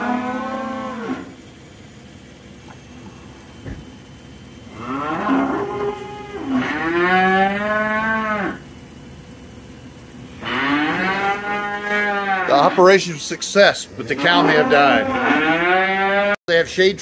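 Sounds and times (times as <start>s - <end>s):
cows mooing: 0.0s - 1.4s, 4.7s - 8.7s, 10.3s - 16.4s.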